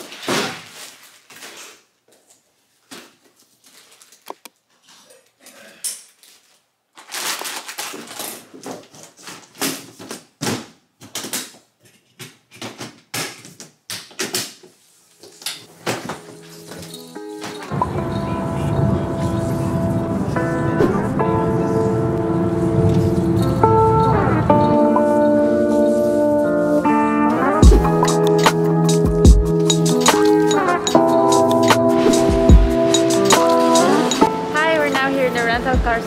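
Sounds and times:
fabric bags rustling: 0:06.2 - 0:10.1, 0:14.8 - 0:17.7
music with steady notes: 0:16.2 - 0:36.0.

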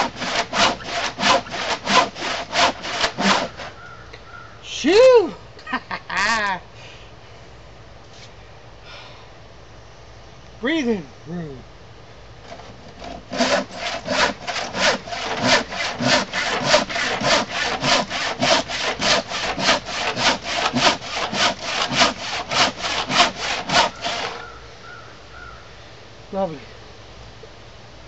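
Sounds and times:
handsaw cutting wood: 0:00.0 - 0:03.8, 0:12.5 - 0:24.4.

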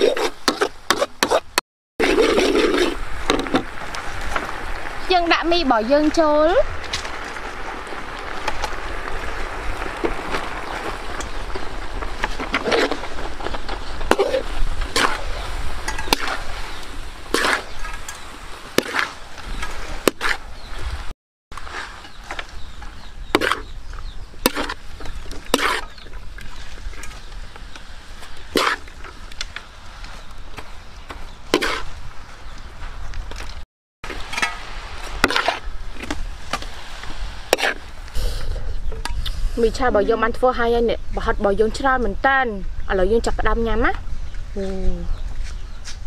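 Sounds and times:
metal spatula scraping a wok: 0:12.3 - 0:20.4, 0:25.5 - 0:26.0, 0:28.4 - 0:29.6, 0:31.5 - 0:31.9, 0:34.1 - 0:37.8.

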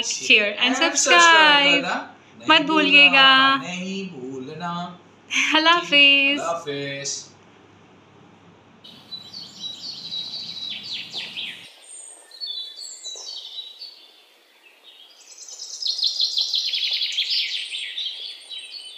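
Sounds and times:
fast loud bird trill: 0:08.9 - 0:11.7
songbirds singing: 0:08.9 - 0:18.9.

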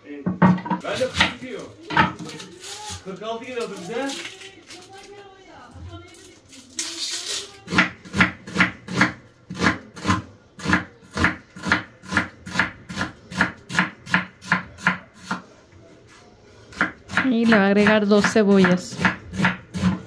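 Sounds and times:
knife chopping on wooden board: 0:07.7 - 0:15.4, 0:16.7 - 0:20.0.

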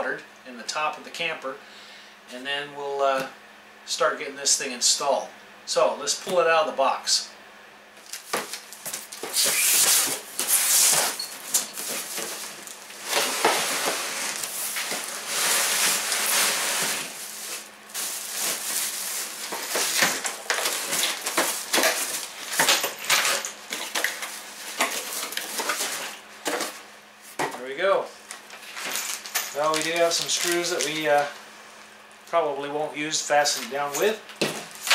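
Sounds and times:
plastic sheeting crinkling: 0:08.0 - 0:22.6, 0:28.6 - 0:31.3
cardboard rustling and scraping: 0:08.0 - 0:27.6.

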